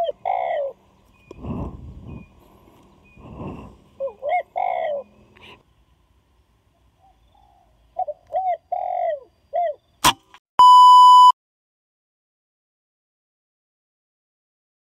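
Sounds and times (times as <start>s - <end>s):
doves cooing: 0.0s - 5.6s, 7.0s - 9.8s
sharp crack: 10.0s - 10.4s
high-pitched beep: 10.6s - 11.4s.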